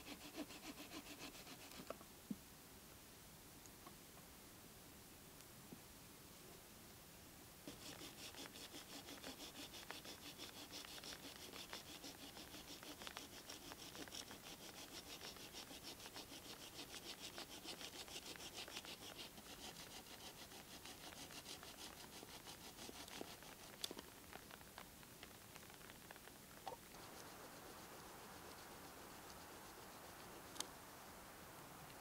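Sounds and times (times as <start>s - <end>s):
hand saw cutting wood: 0.0s - 1.9s, 7.7s - 23.8s.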